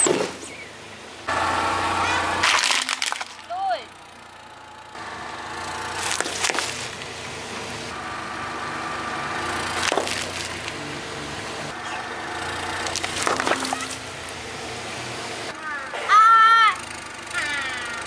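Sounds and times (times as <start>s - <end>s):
car engine running slowly: 0.0s - 18.0s
tyre crushing plastic with cracks: 2.4s - 3.4s, 6.0s - 7.0s, 9.8s - 10.8s, 12.8s - 14.0s.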